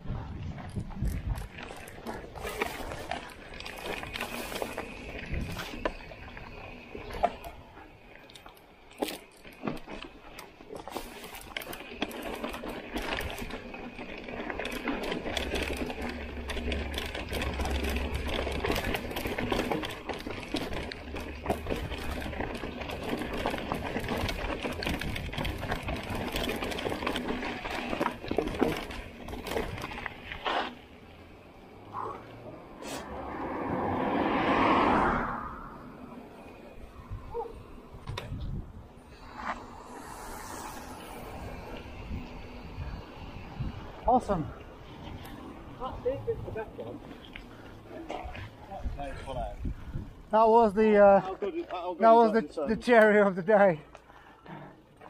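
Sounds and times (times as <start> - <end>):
bike parts rattling: 0.0 - 31.3, 36.3 - 55.0
tyres crunching over stones: 0.6 - 31.5.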